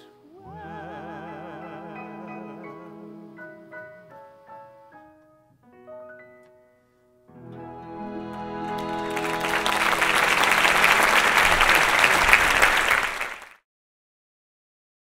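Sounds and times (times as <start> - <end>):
orchestra holding final chord: 7.4 - 13.2
audience applause: 7.8 - 13.6.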